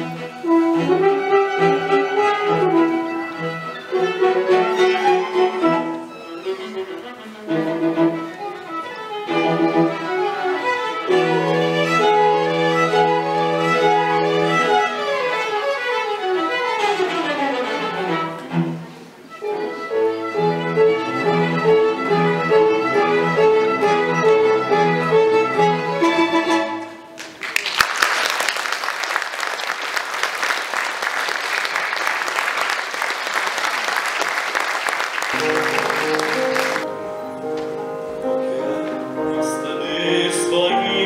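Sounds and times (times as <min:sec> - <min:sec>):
string quartet with french horn: 0:00.0 - 0:27.1.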